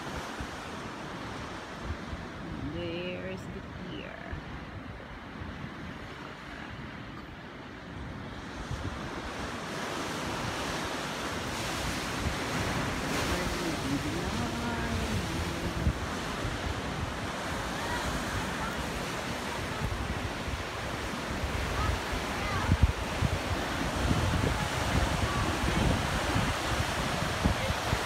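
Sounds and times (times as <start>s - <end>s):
wind buffeting microphone: 0.0s - 28.0s
surf breaking over rocks: 8.8s - 28.0s.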